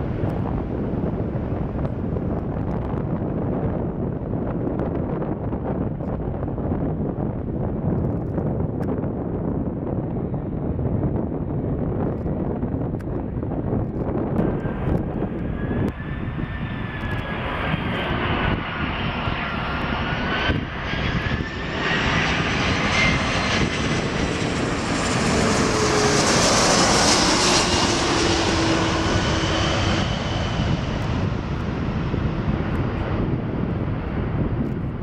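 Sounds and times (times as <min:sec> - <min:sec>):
jet airliner passing overhead: 0:00.0 - 0:35.0.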